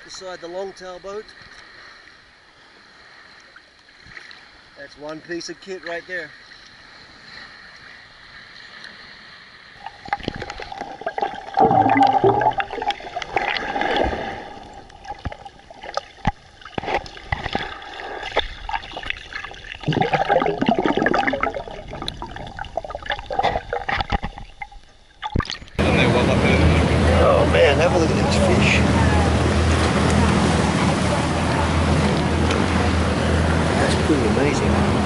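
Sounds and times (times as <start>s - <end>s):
sea water gurgling and sloshing: 0.0s - 35.0s
water splashing and bubbling: 2.8s - 4.8s, 6.4s - 25.8s.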